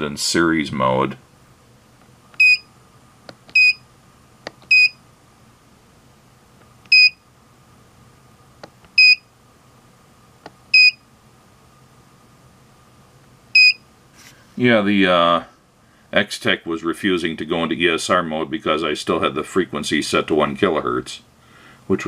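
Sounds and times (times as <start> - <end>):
short high beeps: 3.6 - 3.8, 4.7 - 5.0, 13.6 - 13.8.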